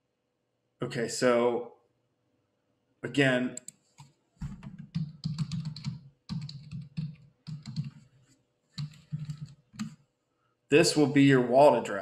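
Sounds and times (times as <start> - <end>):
typing on computer keyboard: 4.4 - 8.1, 8.8 - 10.0.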